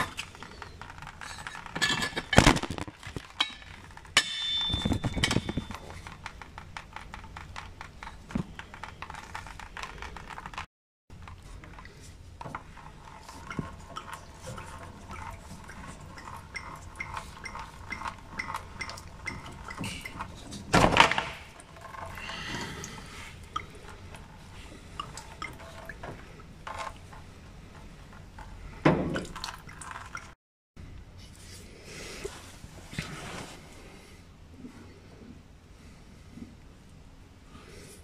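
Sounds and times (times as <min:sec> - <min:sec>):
fuel dripping and splashing: 0:13.2 - 0:20.4.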